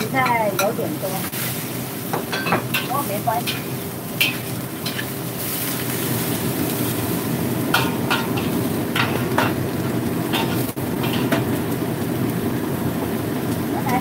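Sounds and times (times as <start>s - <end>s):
frying hiss: 0.0s - 14.0s
metal spatula scraping a wok: 2.4s - 6.9s.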